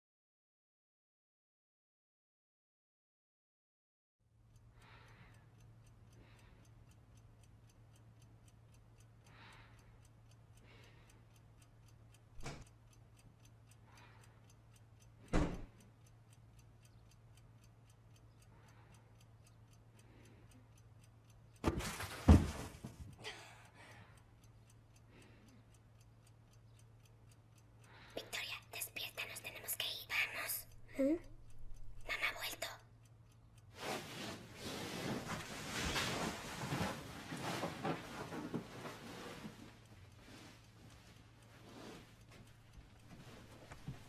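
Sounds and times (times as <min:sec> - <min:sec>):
faint clock ticking: 0:04.3 - 0:44.0
rustling and knocking: 0:21.6 - 0:23.2.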